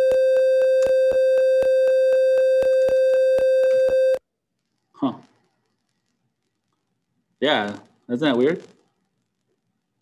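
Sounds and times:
buzzy electronic alarm beeps: 0:00.0 - 0:04.2.

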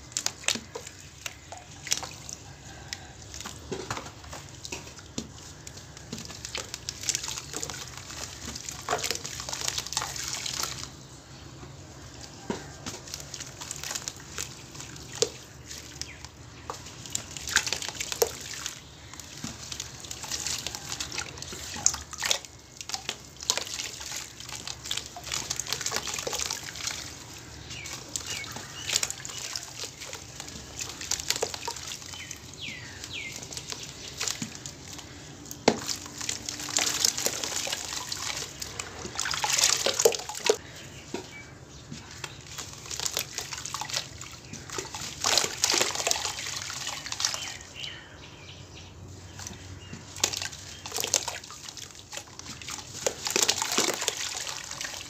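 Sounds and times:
squelching paste: 0:00.0 - 0:48.0, 0:49.2 - 0:55.0
crackles and drips: 0:00.0 - 0:48.3, 0:49.0 - 0:55.0
cement crumbling into water: 0:12.4 - 0:40.6, 0:42.0 - 0:47.6, 0:49.4 - 0:55.0.

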